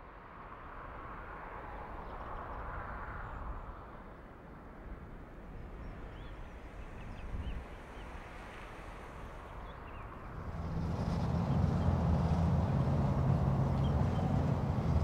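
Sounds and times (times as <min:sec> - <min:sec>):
low outdoor rumble: 0:10.2 - 0:15.0.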